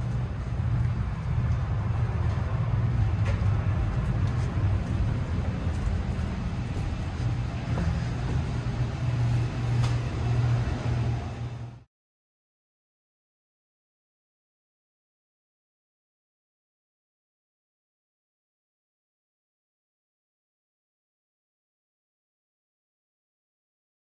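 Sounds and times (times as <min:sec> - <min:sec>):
low rumble of machinery: 0:00.0 - 0:11.9.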